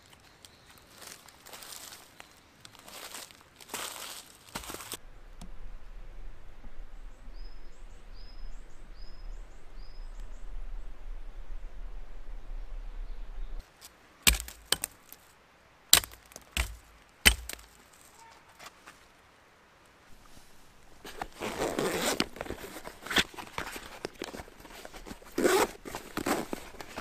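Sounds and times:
rustling of camp gear: 0:00.0 - 0:05.0, 0:16.0 - 0:19.2, 0:20.1 - 0:27.0
twigs cracking: 0:00.0 - 0:05.0, 0:13.8 - 0:15.3, 0:15.9 - 0:18.8, 0:21.0 - 0:27.0.

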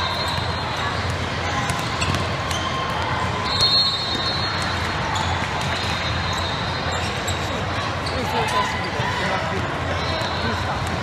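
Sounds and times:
echoing hall noise: 0:00.0 - 0:11.0
basketball bouncing: 0:01.0 - 0:02.8
shoe squeaks: 0:03.4 - 0:08.6.

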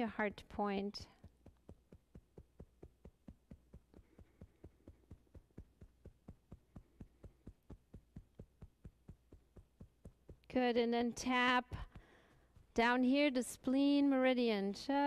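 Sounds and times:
hand tapping on chest: 0:01.0 - 0:10.6, 0:11.6 - 0:12.8.

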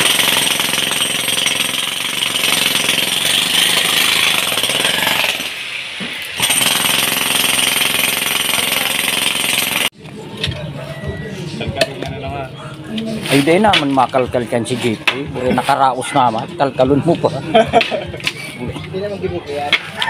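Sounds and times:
demolition hammer on concrete: 0:00.0 - 0:09.9.

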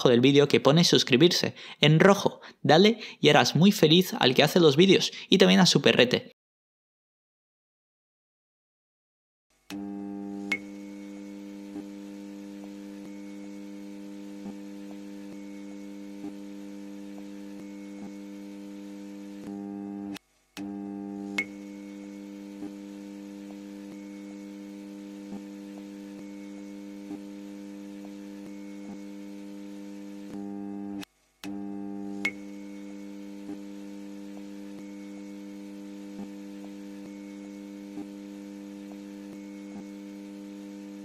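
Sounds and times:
neon sign electric hum: 0:09.6 - 0:41.0
sharp electric click: 0:10.5 - 0:10.8, 0:21.3 - 0:21.7, 0:32.2 - 0:32.6.

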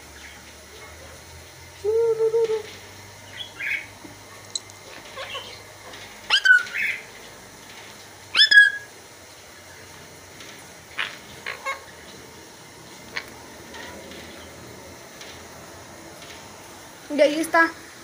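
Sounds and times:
parrot squawking: 0:05.1 - 0:05.6, 0:06.3 - 0:07.0, 0:08.3 - 0:08.9, 0:10.9 - 0:12.0.

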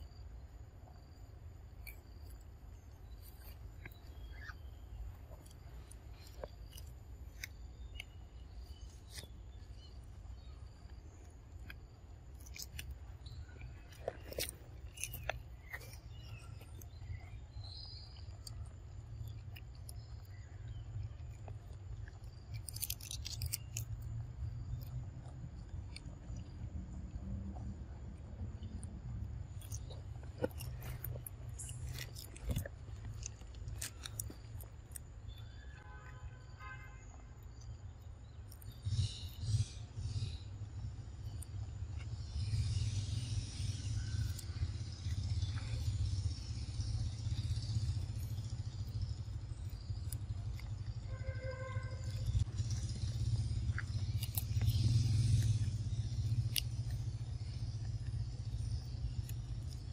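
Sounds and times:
monkeys chewing crunchy leaves: 0:12.3 - 0:24.2, 0:29.4 - 0:35.0, 0:52.0 - 0:59.9
steady low rumble: 0:37.5 - 0:59.9.

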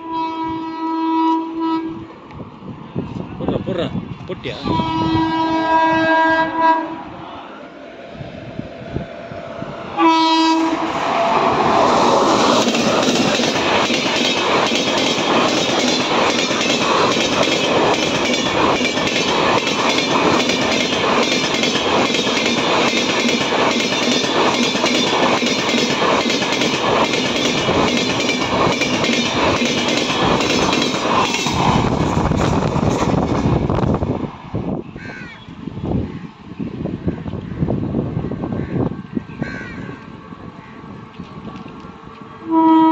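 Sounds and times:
electric locomotive horn blast: 0:00.0 - 0:02.0, 0:04.6 - 0:07.1, 0:10.0 - 0:11.0, 0:42.4 - 0:42.9
rush of passing train: 0:00.0 - 0:42.9
train wheels clattering over rail joints: 0:11.9 - 0:34.0.

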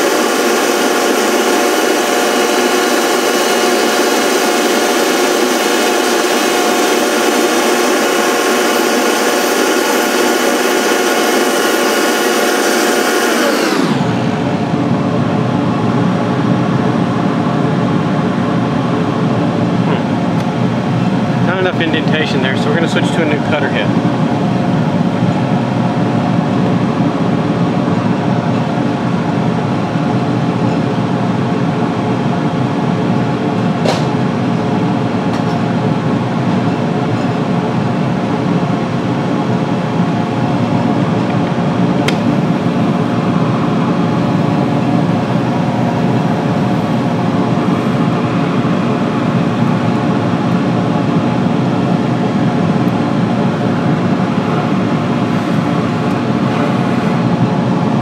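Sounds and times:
electric motor hum: 0:00.0 - 0:17.5.

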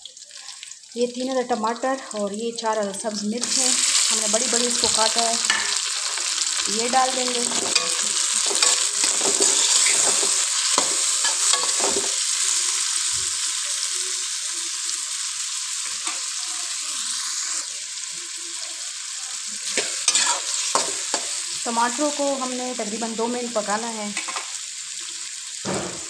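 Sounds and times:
vegetables sizzling in oil: 0:00.0 - 0:26.0
spatula scraping pan: 0:07.0 - 0:12.2, 0:19.7 - 0:21.4.

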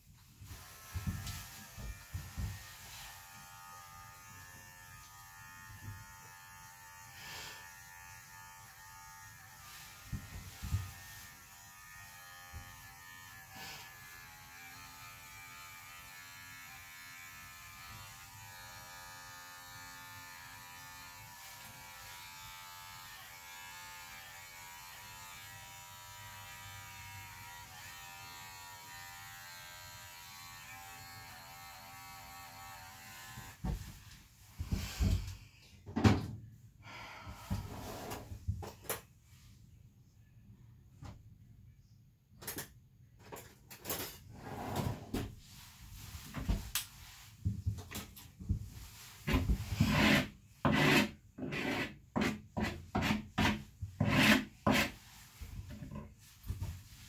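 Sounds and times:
electric clippers humming: 0:00.5 - 0:33.6.

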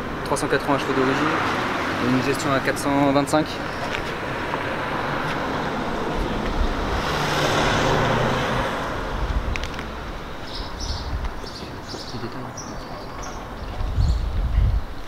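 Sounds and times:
car driving past: 0:03.7 - 0:11.6.

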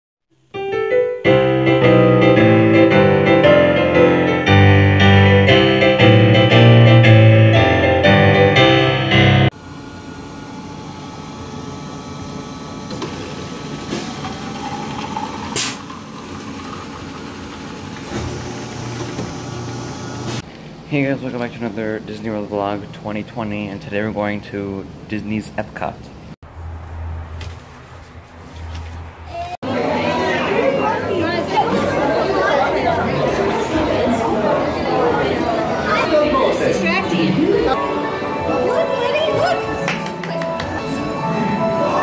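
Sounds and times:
keyboard music with steady beat: 0:00.6 - 0:09.5
water rushing into a mug: 0:14.1 - 0:19.6.

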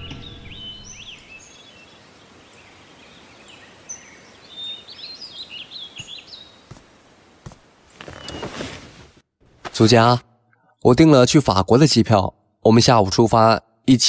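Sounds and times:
music: 0:00.0 - 0:01.2
birds chirping and twittering: 0:00.0 - 0:09.0
outdoor hiss: 0:01.1 - 0:09.2.

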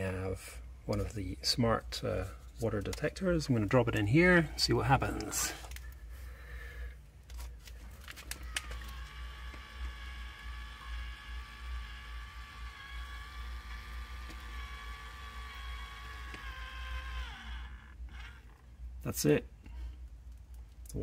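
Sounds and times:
geared motor whine: 0:08.0 - 0:19.0.

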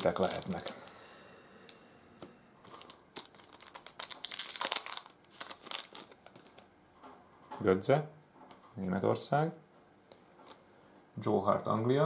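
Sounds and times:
foil wrapper crinkling: 0:00.0 - 0:01.0, 0:02.6 - 0:06.7.

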